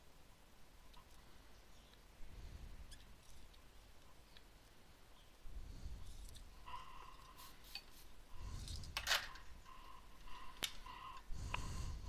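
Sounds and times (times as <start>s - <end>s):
small clicks of tools and parts: 8.6s - 9.6s, 10.5s - 11.6s.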